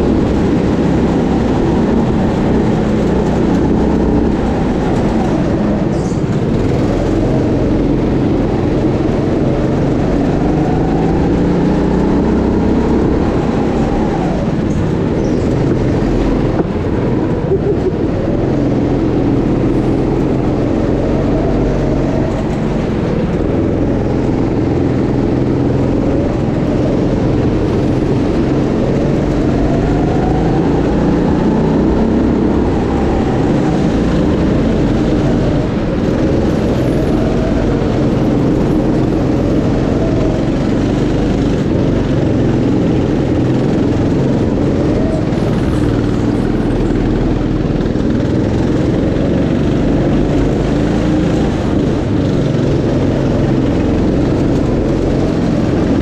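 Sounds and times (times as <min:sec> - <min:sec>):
go-kart engine revving: 0:00.0 - 0:56.0.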